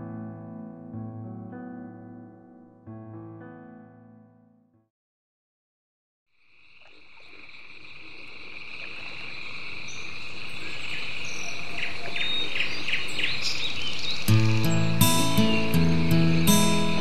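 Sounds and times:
acoustic guitar music: 0.0s - 4.7s, 14.3s - 17.0s.

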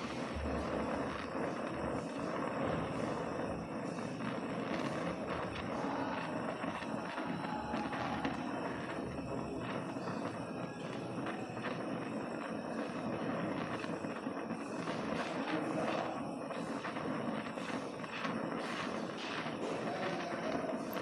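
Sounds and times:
light crackles: 0.0s - 21.0s
welding torch flame hissing: 0.0s - 21.0s.

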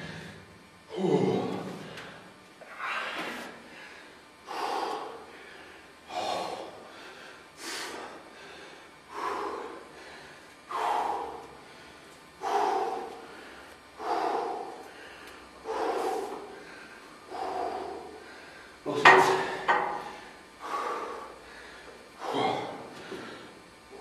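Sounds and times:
man breathing heavily: 0.0s - 24.0s.

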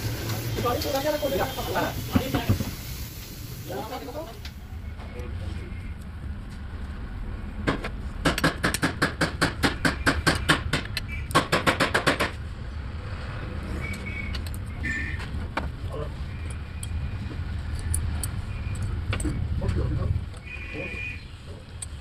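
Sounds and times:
ratchet wrench clicking: 17.7s - 19.3s.

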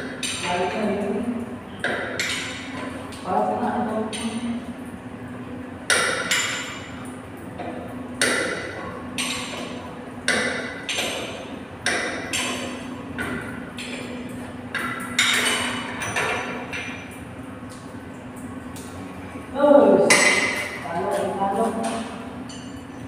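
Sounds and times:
steady low hum: 0.0s - 23.0s
metal tools clanking on pipes: 1.7s - 3.0s, 5.9s - 17.2s, 20.0s - 23.0s.

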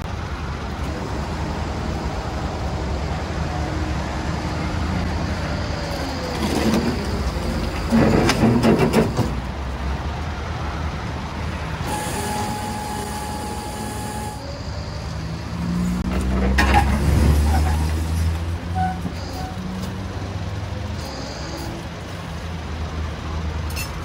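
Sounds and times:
truck engine rumble: 0.0s - 24.0s
metallic knocks and clatter: 7.7s - 9.5s.

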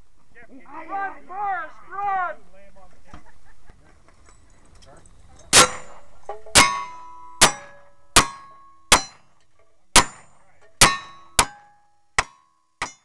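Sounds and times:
steel target ringing: 5.5s - 9.3s, 10.0s - 13.0s.

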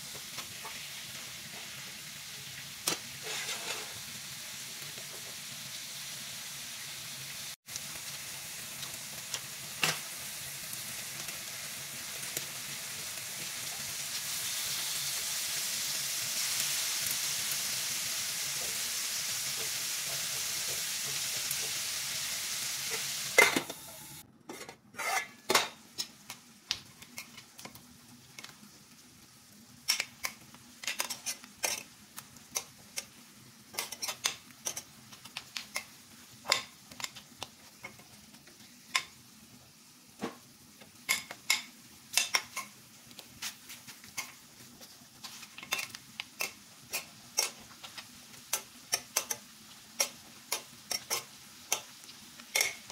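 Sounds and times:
meat sizzling in a frying pan: 0.0s - 24.2s, 25.1s - 52.9s.

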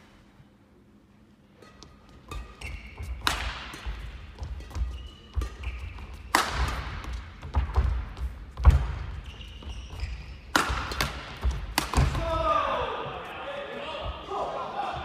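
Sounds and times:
shoes squeaking on court: 1.7s - 3.3s, 3.9s - 6.3s, 7.0s - 11.0s
racket striking shuttlecock: 1.8s - 9.1s, 10.5s - 12.2s.

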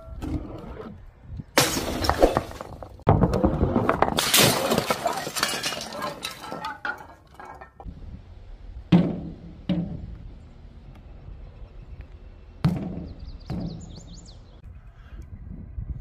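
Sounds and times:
glass screen crashing: 1.6s - 2.8s, 4.0s - 7.8s
glass shards clinking: 4.2s - 7.8s.

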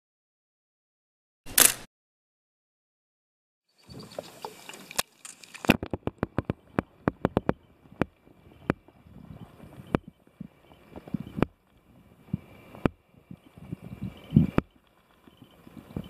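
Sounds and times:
muffled underwater clicks and knocks: 4.0s - 8.9s
faint steady high tone: 13.2s - 16.0s.

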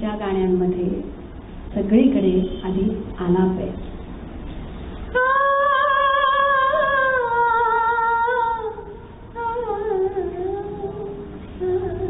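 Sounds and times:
woman humming into a microphone: 9.4s - 12.0s.

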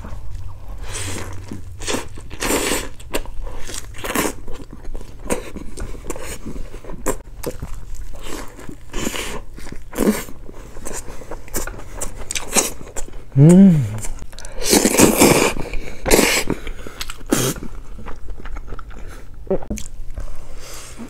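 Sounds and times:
biting into a burger: 0.1s - 20.1s
crunchy chewing: 14.0s - 20.0s.

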